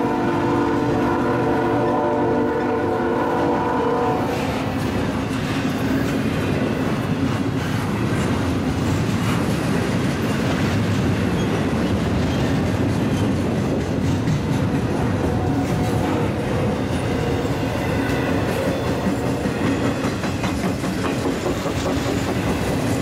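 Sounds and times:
train horn: 0.0 - 4.8, 15.2 - 19.6
freight train rumbling past: 0.0 - 23.0
wheels clicking over rail joints: 4.5 - 17.3, 18.0 - 23.0.

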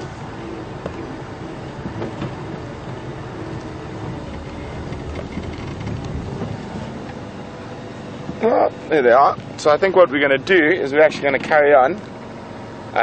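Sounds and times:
road noise: 0.0 - 13.0
vehicle engine running: 0.0 - 13.0
knocks and rattles: 1.8 - 7.2.

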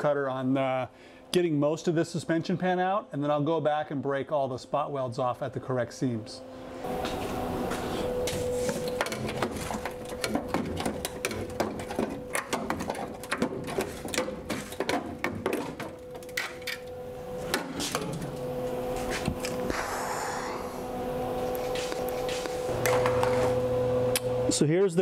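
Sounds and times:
steady background hum: 0.0 - 25.0.

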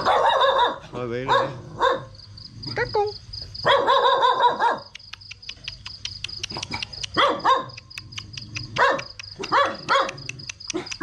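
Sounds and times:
dog barking: 0.0 - 2.2, 3.6 - 5.0, 6.6 - 7.9, 8.7 - 11.0.

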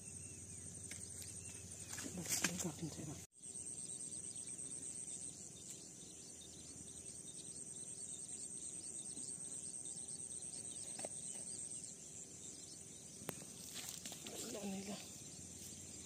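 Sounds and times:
faint outdoor background noise: 0.0 - 16.0
insects chirring: 0.0 - 16.0.

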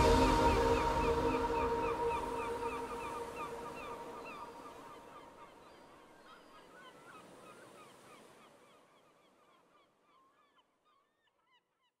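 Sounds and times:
flock of birds chirping: 0.0 - 9.7.

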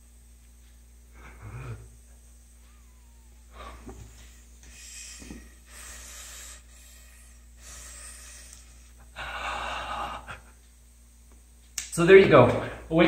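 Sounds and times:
airy breathing through a tube: 3.5 - 10.2.

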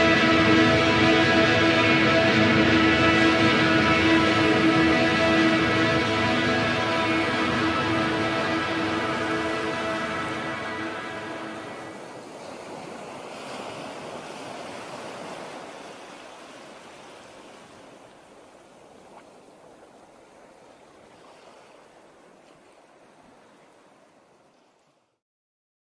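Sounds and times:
ocean surf hissing: 0.0 - 18.1.

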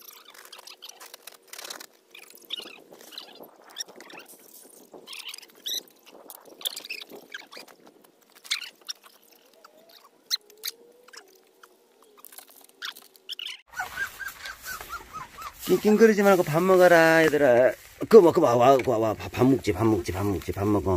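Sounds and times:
puppies squeaking and whimpering: 8.4 - 16.2.

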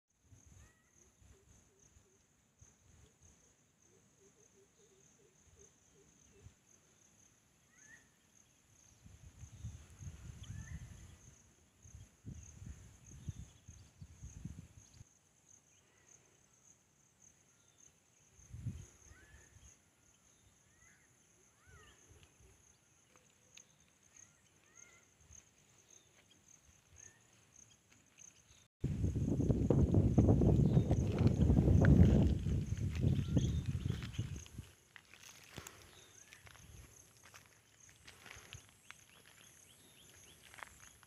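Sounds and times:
insects trilling: 0.3 - 41.0
low rumbles on microphone: 28.8 - 34.5.

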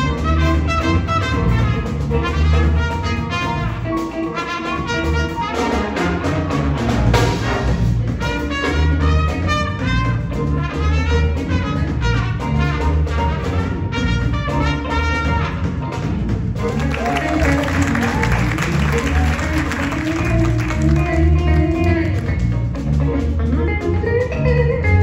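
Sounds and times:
trumpet solo: 0.0 - 16.0
big band playing funk: 0.0 - 25.0
pulsing bass line: 0.0 - 25.0.

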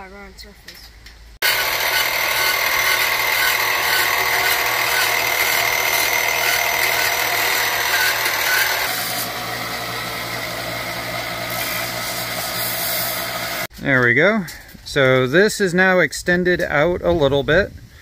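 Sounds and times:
bandsaw cutting steel: 1.4 - 13.7
belt sander running: 1.4 - 13.7.

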